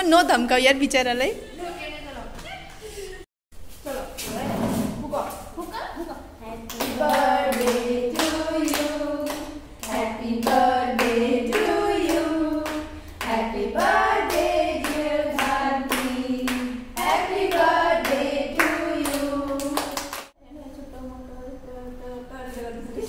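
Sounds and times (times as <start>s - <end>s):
women singing together: 6.5s - 20.2s.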